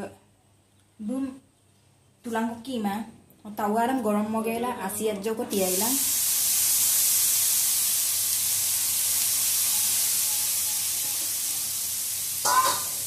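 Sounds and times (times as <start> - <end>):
water droplets sizzling on griddle: 5.5 - 13.0.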